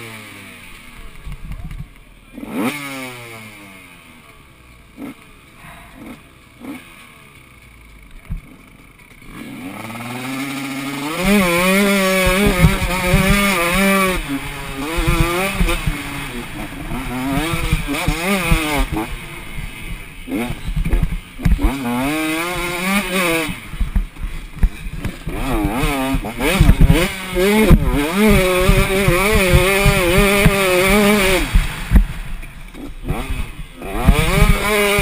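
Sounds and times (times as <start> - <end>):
dirt bike engine revving: 0.0 - 35.0.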